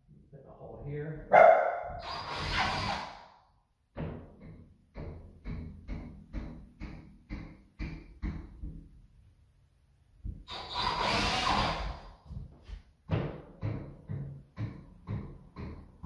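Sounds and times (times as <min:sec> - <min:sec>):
power drill boring into wall: 0:01.9 - 0:03.4, 0:10.5 - 0:12.2.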